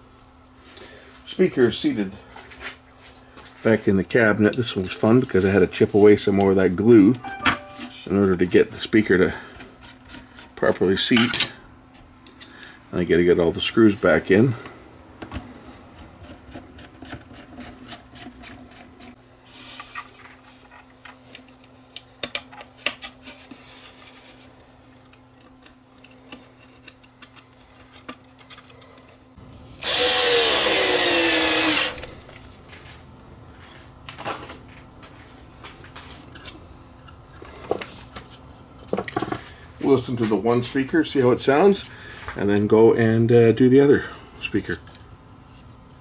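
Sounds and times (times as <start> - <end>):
power drill running: 29.8 - 32.2.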